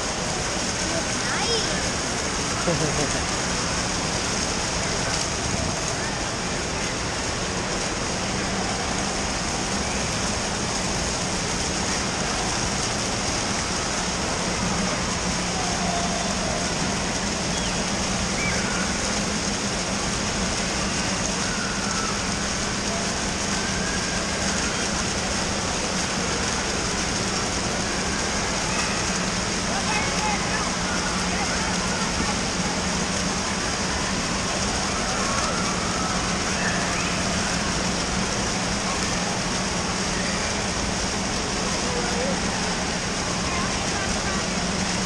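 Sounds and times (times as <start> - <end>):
running and splashing water: 0.0 - 45.0
crowd chatter and shouts: 27.1 - 45.0.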